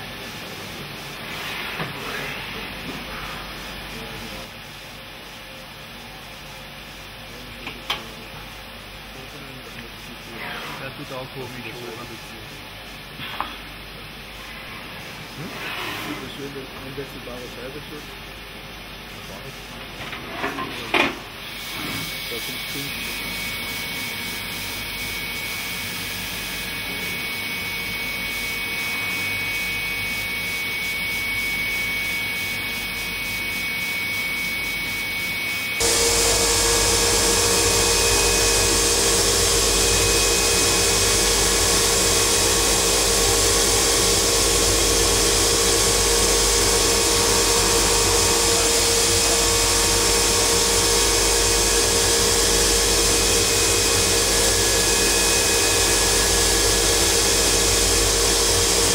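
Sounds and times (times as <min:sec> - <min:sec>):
steady hum: 0:21.2 - 0:58.9
grinding machine grinding: 0:35.8 - 0:58.9.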